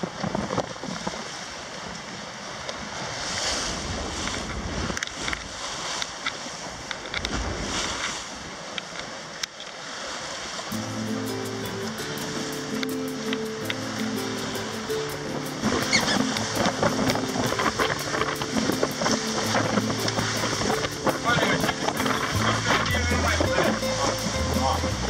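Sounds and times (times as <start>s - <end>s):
wind and water rushing: 0.0s - 25.0s
background music: 10.7s - 25.0s
wind buffeting microphone: 13.5s - 25.0s.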